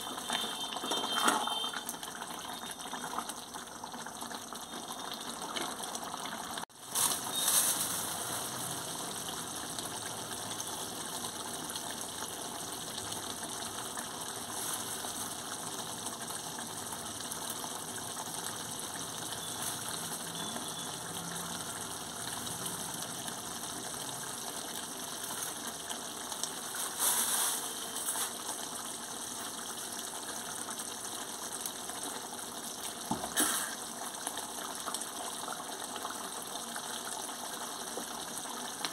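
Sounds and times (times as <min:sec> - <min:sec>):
gravy bubbling in a wok: 0:00.0 - 0:38.9.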